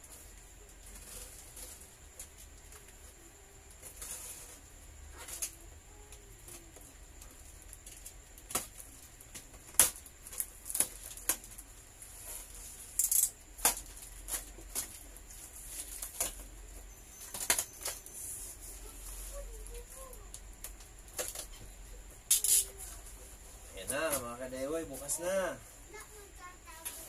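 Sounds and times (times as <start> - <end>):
cardboard crackling and snapping: 5.2 - 16.6, 17.3 - 18.0, 19.0 - 21.6.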